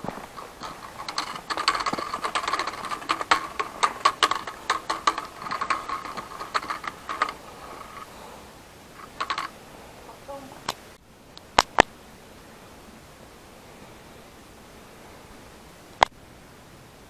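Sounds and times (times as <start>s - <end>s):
footsteps on rocks: 0.0s - 8.2s.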